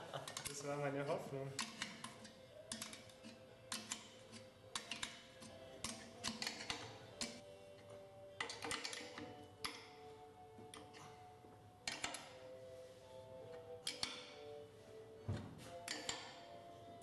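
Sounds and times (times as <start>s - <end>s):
faint background music: 0.0s - 17.0s
wrench clicking on metal nuts: 1.6s - 7.4s, 8.4s - 9.9s, 11.8s - 12.3s, 13.8s - 14.3s, 15.8s - 16.4s.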